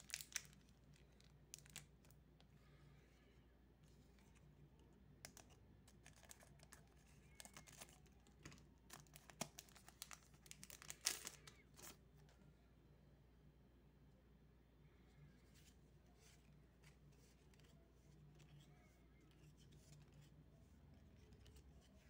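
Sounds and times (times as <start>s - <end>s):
foil wrapper crinkling and tearing: 0.0s - 2.2s, 6.0s - 12.0s.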